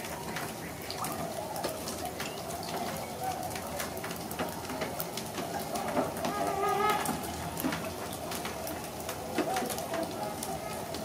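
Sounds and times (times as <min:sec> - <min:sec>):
distant swans calling: 0:05.7 - 0:08.2.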